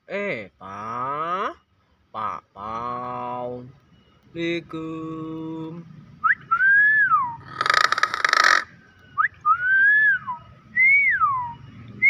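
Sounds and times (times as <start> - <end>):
bird whistling: 6.2 - 12.0
harsh rasping bird call: 7.2 - 8.8.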